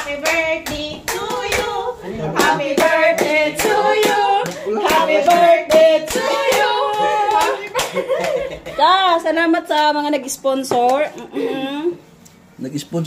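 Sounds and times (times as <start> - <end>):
people singing together: 0.0 - 8.3
rhythmic hand clapping: 0.0 - 8.5.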